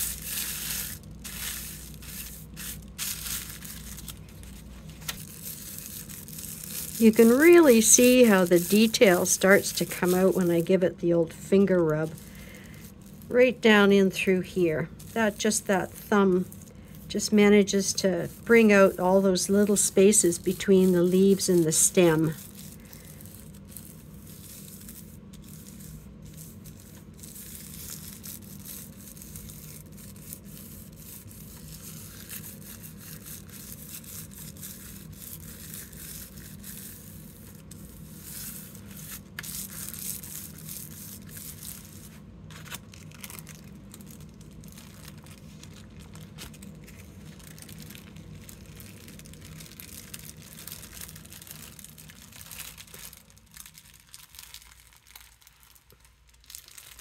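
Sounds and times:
tissue paper peeling off: 0.0 - 10.8, 17.7 - 57.0
scratchy rustle of tissue paper: 0.0 - 57.0.

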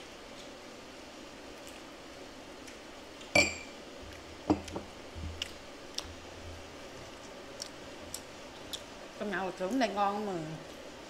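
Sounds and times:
tableware clink: 3.3 - 3.7.

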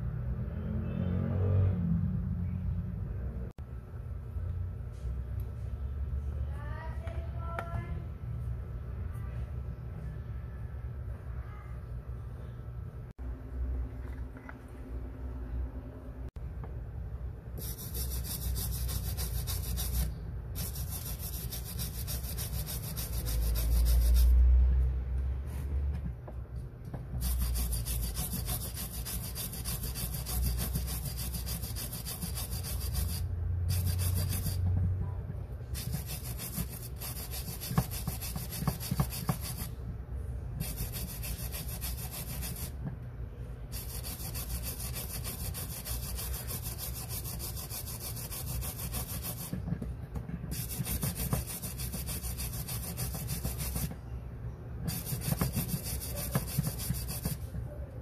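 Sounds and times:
stick scraping a coin: 27.2 - 34.7.

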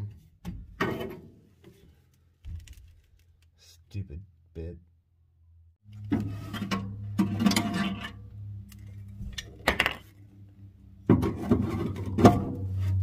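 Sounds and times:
steady low hum: 2.6 - 13.0
metal clinking and scraping: 6.0 - 10.2.

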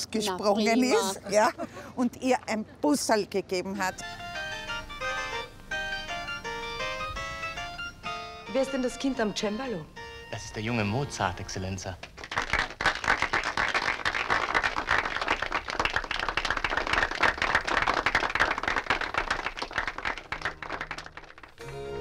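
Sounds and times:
audience applauding: 12.1 - 22.0.

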